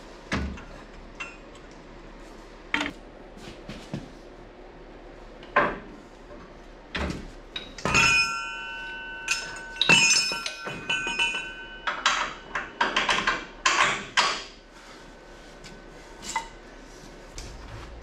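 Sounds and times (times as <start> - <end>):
ringing metal strikes: 7.8 - 13.0.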